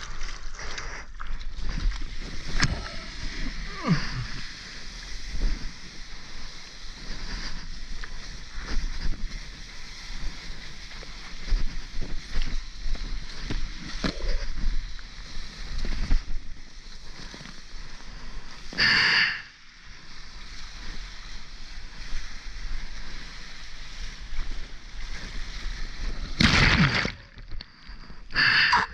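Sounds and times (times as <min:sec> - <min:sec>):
loud water splash: 0:26.4 - 0:27.4.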